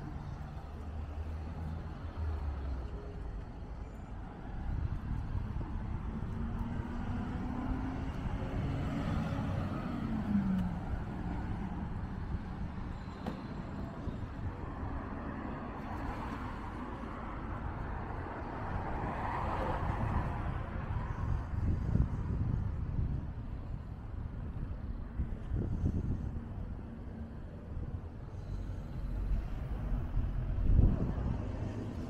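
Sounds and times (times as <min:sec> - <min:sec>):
road traffic rumble: 0:00.0 - 0:32.0
vehicle passing: 0:05.6 - 0:12.0.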